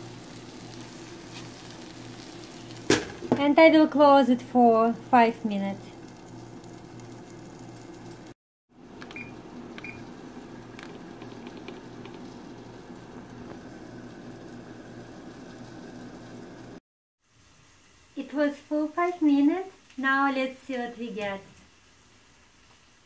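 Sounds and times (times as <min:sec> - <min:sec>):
fish sizzling in a pan: 0:00.0 - 0:03.4, 0:05.5 - 0:08.4, 0:17.2 - 0:23.0.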